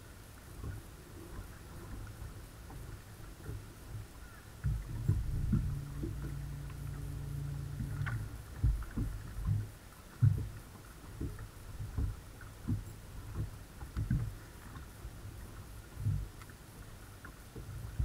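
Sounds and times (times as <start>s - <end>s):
low thumps against hull: 0.6s - 14.8s
electric trolling motor humming: 4.9s - 9.6s.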